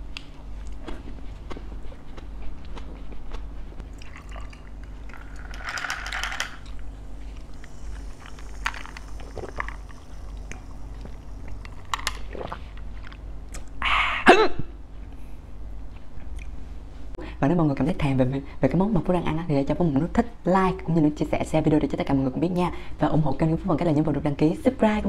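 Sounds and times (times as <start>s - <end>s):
chewing and crunching food: 0.0s - 5.8s, 6.6s - 13.8s
low steady hum: 0.0s - 25.0s.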